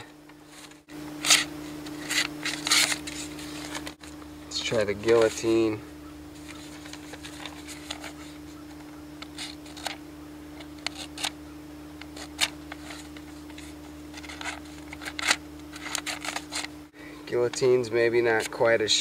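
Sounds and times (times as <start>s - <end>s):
blades slicing through paper: 0.5s - 4.0s.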